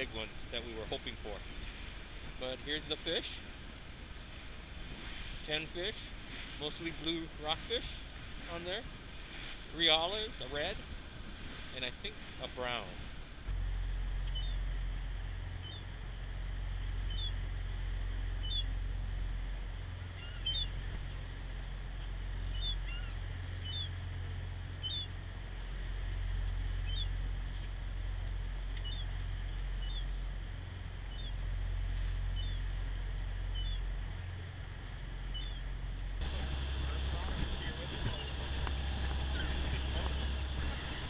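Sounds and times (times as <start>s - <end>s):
boat and wind rumble: 0.0s - 41.0s
gulls calling: 14.3s - 14.7s, 15.5s - 15.9s, 16.9s - 17.6s, 18.3s - 18.8s, 20.0s - 21.0s, 22.4s - 24.1s, 24.7s - 25.2s, 26.7s - 27.2s, 28.8s - 30.1s, 33.4s - 33.9s, 35.2s - 41.0s.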